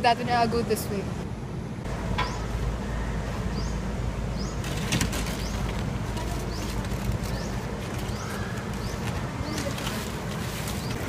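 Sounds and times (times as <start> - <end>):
plastic sacks rustling: 4.6 - 11.0
bird chirps: 6.4 - 9.6.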